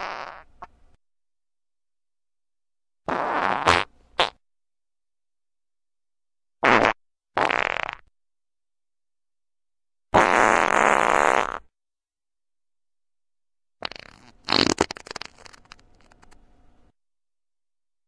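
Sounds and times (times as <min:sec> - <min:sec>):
farts: 0:00.0 - 0:00.5, 0:03.1 - 0:04.4, 0:06.6 - 0:08.1, 0:10.1 - 0:11.7, 0:13.8 - 0:16.4.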